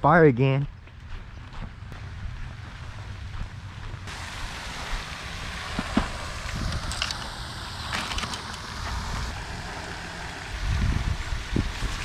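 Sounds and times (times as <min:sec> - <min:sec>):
pond fountain splashing: 0:02.0 - 0:12.0
wind buffeting microphone: 0:05.6 - 0:07.7, 0:08.5 - 0:12.0.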